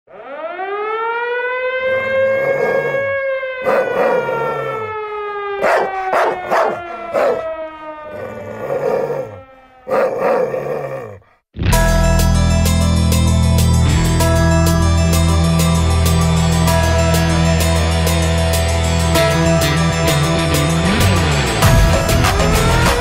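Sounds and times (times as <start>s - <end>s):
civil defence siren wailing: 0.1s - 11.2s, 14.2s - 23.0s
dog barking and growling: 1.9s - 5.0s, 5.6s - 11.4s.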